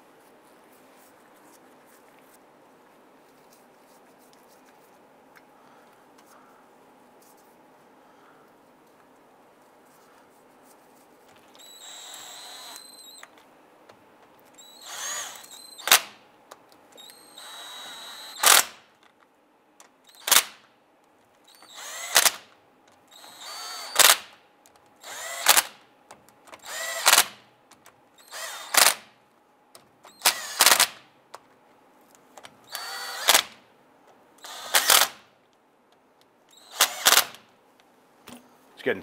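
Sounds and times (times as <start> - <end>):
cordless driver whirring: 11.5 - 13.3, 14.5 - 16.2, 17.0 - 18.8, 21.5 - 22.5, 23.1 - 24.3, 25.0 - 25.8, 26.5 - 27.4, 28.2 - 29.1, 30.1 - 31.0, 32.6 - 33.6, 34.4 - 35.2, 36.5 - 37.4.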